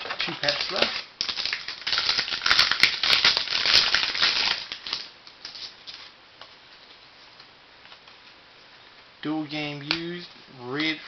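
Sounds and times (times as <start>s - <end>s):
wrapper crinkling: 0.0s - 6.1s.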